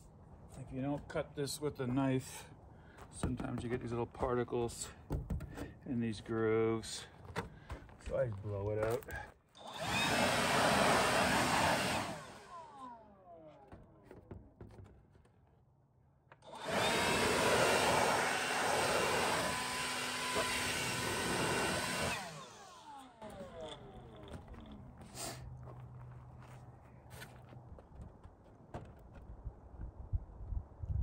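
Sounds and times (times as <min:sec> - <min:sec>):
air blower blasts: 0:09.6 - 0:13.0, 0:16.4 - 0:25.5.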